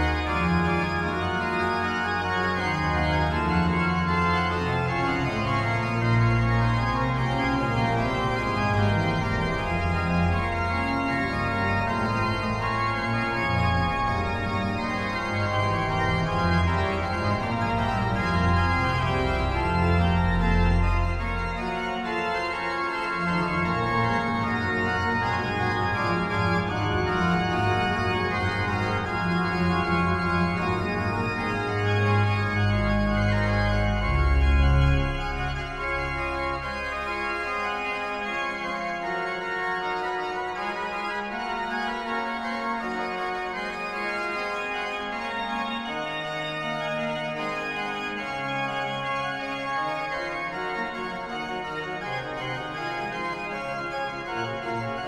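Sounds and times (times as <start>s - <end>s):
deep bass organ notes: 0.0s - 38.6s
pipe organ chords: 0.0s - 55.0s.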